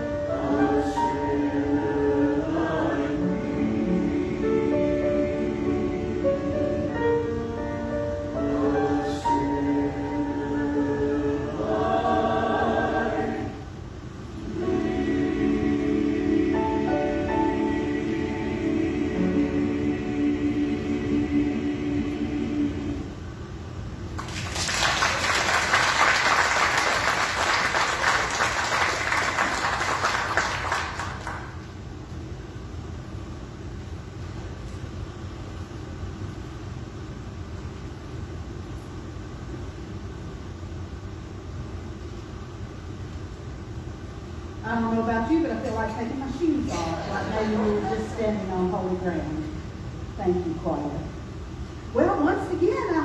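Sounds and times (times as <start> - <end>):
church choir singing: 0.0 - 23.4, 46.7 - 48.5
room murmur: 0.0 - 53.0
congregation applauding: 24.2 - 31.6.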